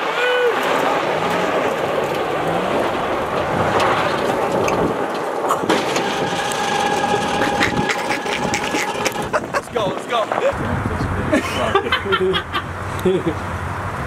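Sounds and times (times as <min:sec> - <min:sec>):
sharp crack: 0:00.0 - 0:09.4
pickup engine revving: 0:00.0 - 0:09.9
tires spraying gravel: 0:00.0 - 0:11.8
steady rushing noise: 0:00.0 - 0:14.0.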